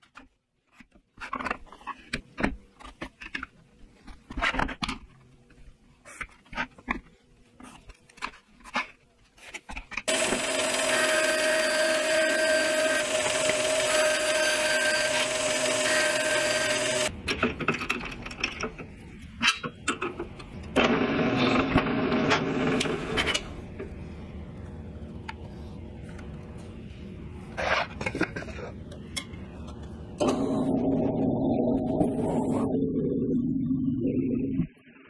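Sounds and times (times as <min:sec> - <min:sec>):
drill press boring into wood: 0:10.1 - 0:17.1
power tool running: 0:10.1 - 0:17.1.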